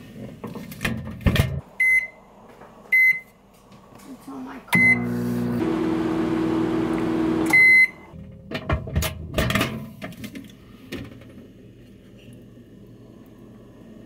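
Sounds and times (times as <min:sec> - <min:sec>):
microwave beep: 0:01.8 - 0:02.2, 0:02.9 - 0:03.3, 0:04.8 - 0:08.2
microwave oven humming: 0:04.8 - 0:08.1.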